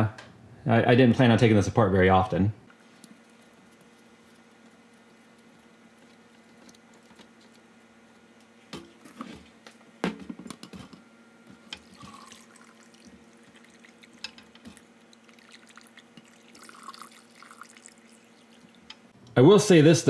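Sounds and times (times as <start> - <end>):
coolant dripping into glass bowl: 11.7 - 19.1.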